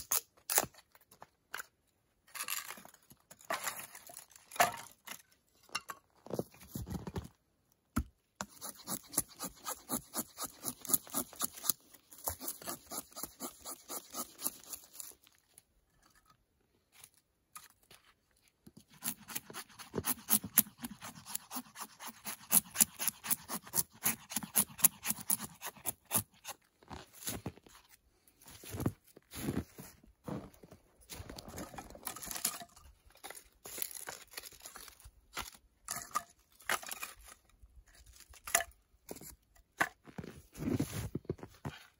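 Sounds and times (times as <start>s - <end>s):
knife scraping wood: 8.4s - 15.2s, 18.8s - 26.7s.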